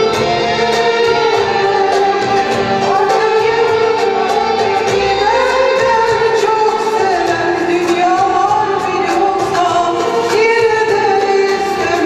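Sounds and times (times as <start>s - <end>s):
accordion: 0.0s - 7.7s
violins: 0.0s - 12.0s
woman singing into a microphone: 0.0s - 12.0s.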